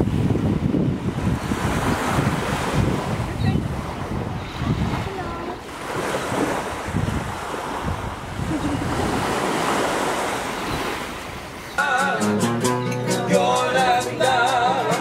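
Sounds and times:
wind buffeting microphone: 0.0s - 11.1s
small waves washing on beach: 0.0s - 11.8s.

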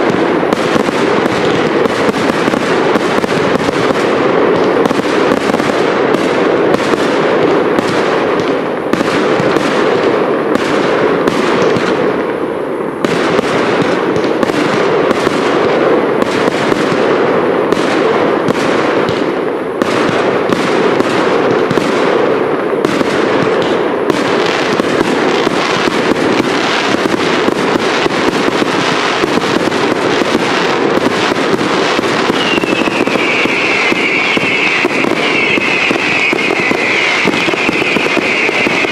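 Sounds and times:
fireworks barrage: 0.0s - 38.9s
descending firework whistle: 32.2s - 38.9s.

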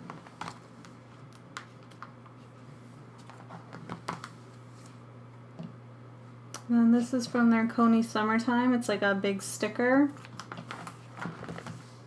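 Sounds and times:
plastic sleeves crinkling: 10.2s - 12.0s.

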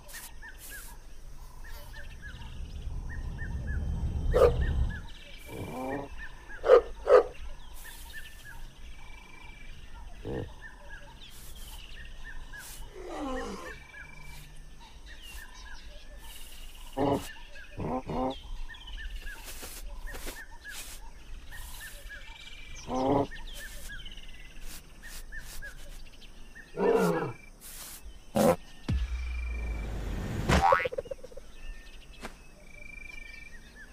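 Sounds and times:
birds chirping: 0.0s - 33.9s.

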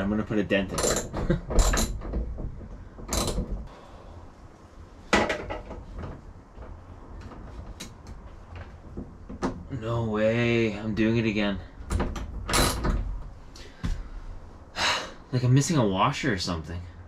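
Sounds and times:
metal clicks and knocks: 0.7s - 3.7s.

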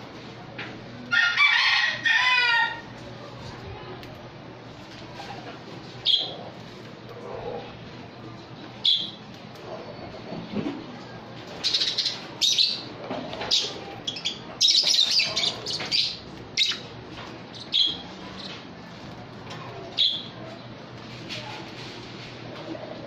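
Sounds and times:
lovebirds chirping and screeching: 6.0s - 6.4s, 11.6s - 16.9s, 17.5s - 18.6s, 19.9s - 20.4s.

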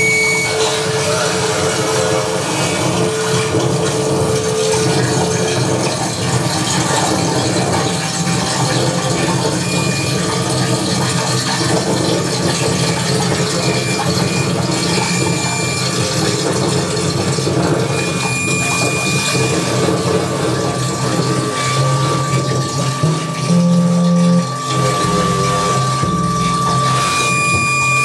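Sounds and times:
short high held tones: 0.0s - 5.9s, 9.5s - 10.5s, 17.9s - 28.0s
crackling grinding electronic noise: 0.0s - 28.0s
steady mid-pitched tone: 0.0s - 28.0s
low drone: 17.5s - 28.0s.

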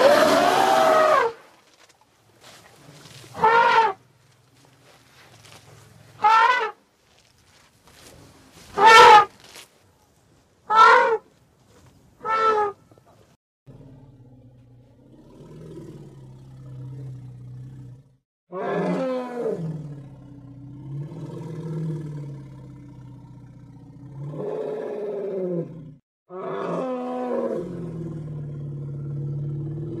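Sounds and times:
mammoth roaring: 13.7s - 30.0s.

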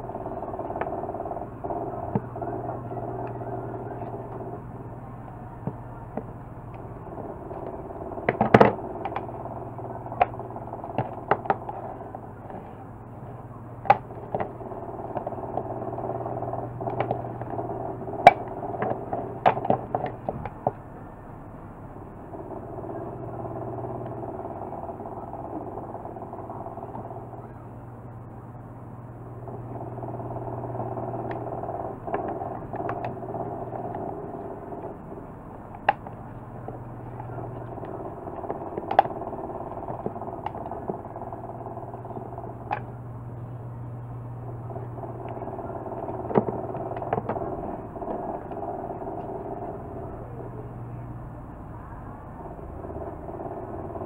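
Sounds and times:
steady low hum: 0.0s - 54.0s
plastic parts clicking and knocking: 7.6s - 9.3s, 10.2s - 12.7s, 13.8s - 15.7s, 16.8s - 17.5s, 18.2s - 20.8s, 35.7s - 41.1s, 46.0s - 48.6s.

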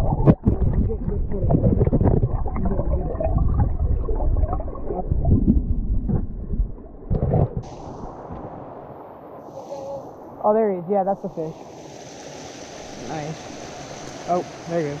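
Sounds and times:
muffled underwater water rush: 0.0s - 15.0s
stream hissing: 7.6s - 15.0s.

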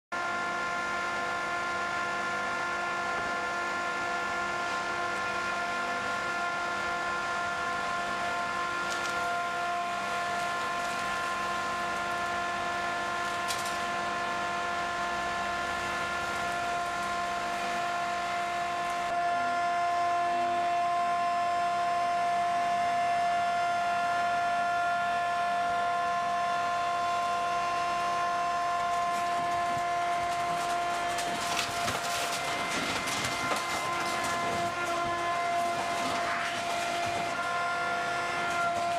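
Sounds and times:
hydraulic baler whining: 0.2s - 38.9s
car body crunching: 29.1s - 37.5s.

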